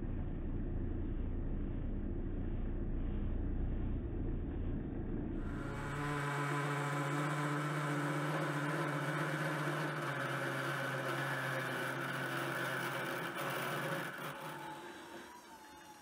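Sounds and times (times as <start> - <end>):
drill cutting metal: 5.4 - 16.0
lathe motor hum: 5.4 - 16.0.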